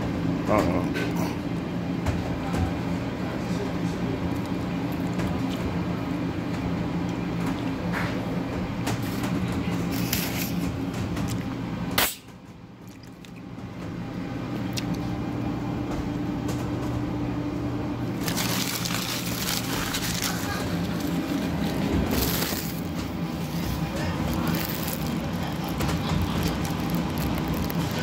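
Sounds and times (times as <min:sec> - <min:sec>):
low machinery hum: 0:00.0 - 0:28.0
plastic bag crinkling: 0:18.1 - 0:28.0.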